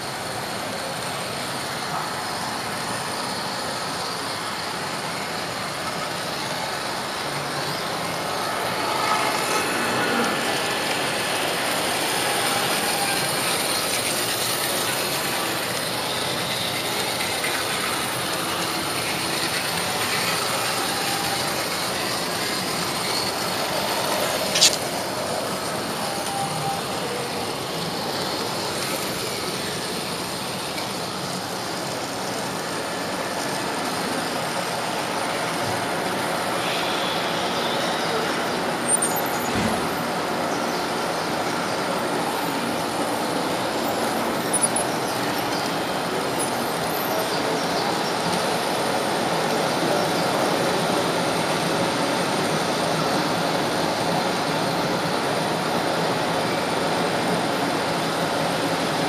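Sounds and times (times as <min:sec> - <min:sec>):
model train rattling on track: 0:00.0 - 0:59.0
sharp click: 0:24.5 - 0:24.9.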